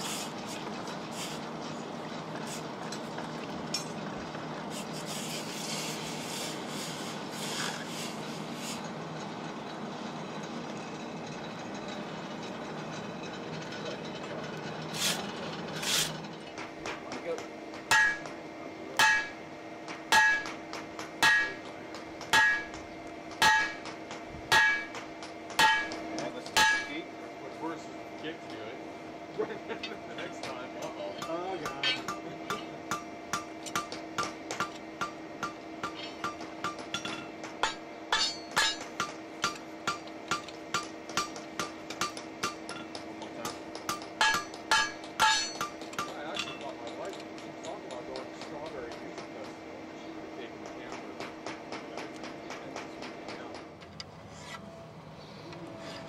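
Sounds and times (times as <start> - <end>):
hammer striking hot steel on anvil: 16.5 - 27.1, 29.8 - 49.6, 50.6 - 53.8
metallic ring: 35.0 - 40.0, 44.2 - 45.8.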